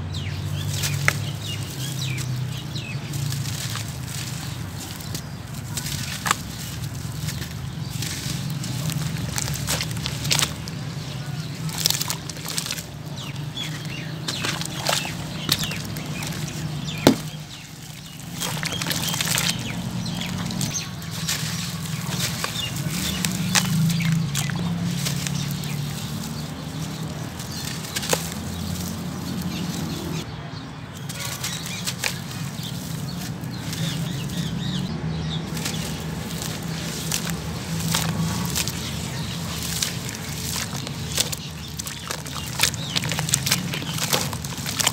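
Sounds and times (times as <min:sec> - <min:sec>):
hands squeezing wet cement: 0:00.3 - 0:30.3, 0:31.0 - 0:44.9
water sloshing: 0:00.3 - 0:30.3, 0:30.9 - 0:44.9.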